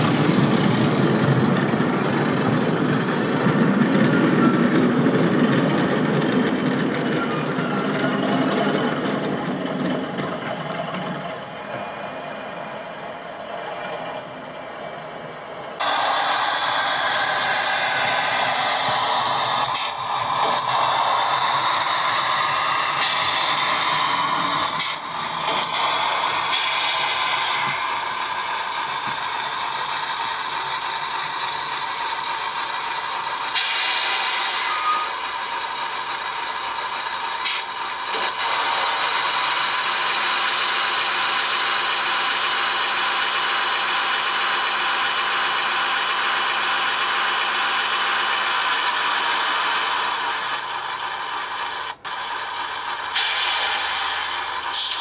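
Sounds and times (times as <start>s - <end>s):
model train rattling: 15.7s - 55.0s.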